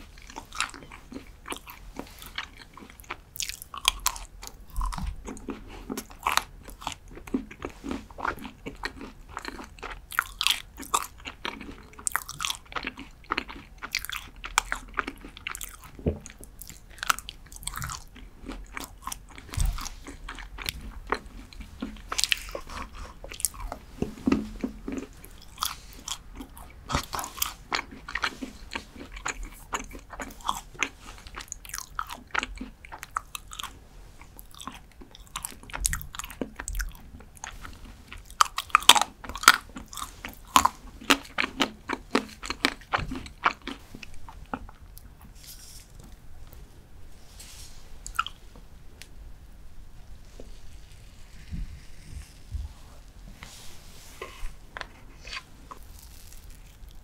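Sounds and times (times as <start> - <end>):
chocolate bar crunching: 0.0 - 46.2, 54.2 - 57.0.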